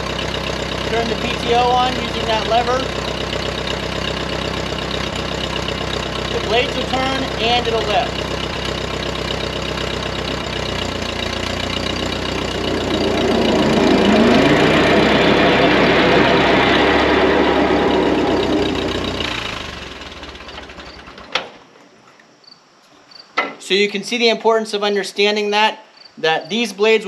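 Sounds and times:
mower blades spinning: 0.0s - 21.4s
tractor engine running: 0.0s - 21.4s.

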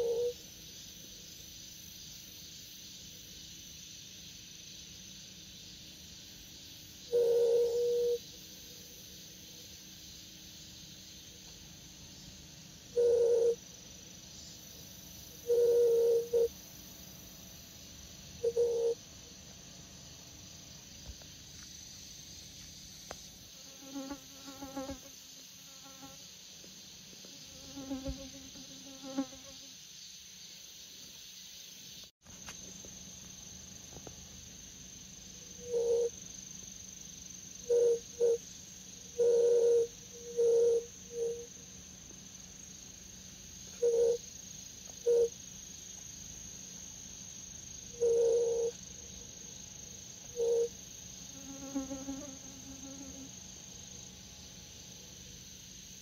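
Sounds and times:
crickets chirring: 0.0s - 56.0s
bee buzzing: 23.6s - 25.1s, 27.5s - 29.6s, 51.4s - 53.2s.

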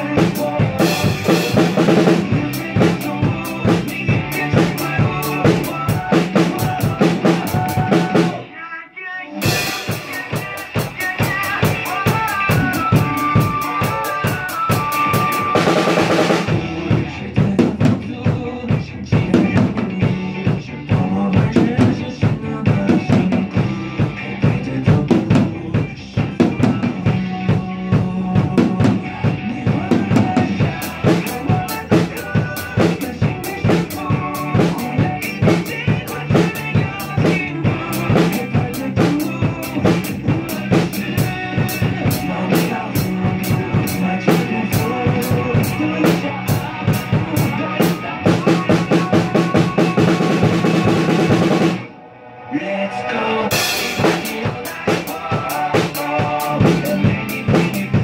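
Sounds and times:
acoustic drum kit playing: 0.0s - 8.4s, 9.4s - 51.9s, 53.5s - 58.0s
pop-rock song: 0.0s - 58.0s.

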